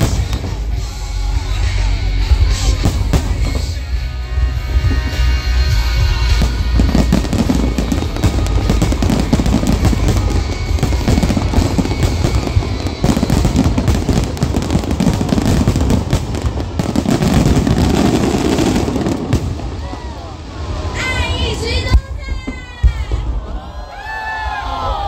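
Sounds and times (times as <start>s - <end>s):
show music: 0.0s - 21.8s
fireworks booming and crackling: 0.0s - 23.6s.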